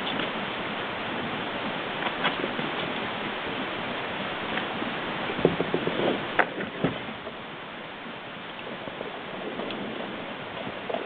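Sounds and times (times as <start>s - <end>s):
crackles and knocks: 0.0s - 0.4s, 1.2s - 3.7s, 4.5s - 7.4s, 8.0s - 11.0s
steady hiss: 0.0s - 11.0s.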